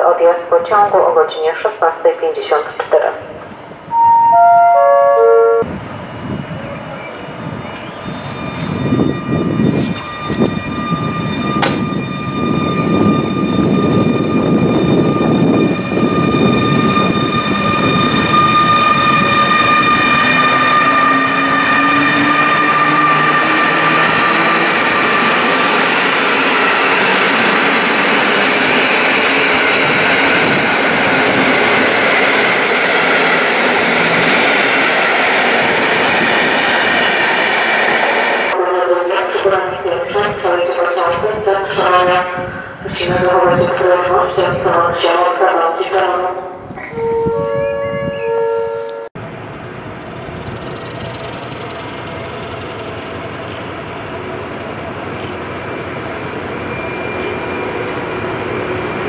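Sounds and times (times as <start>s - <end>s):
electric locomotive whine: 2.2s - 59.0s
train wheels on rails: 5.6s - 38.6s.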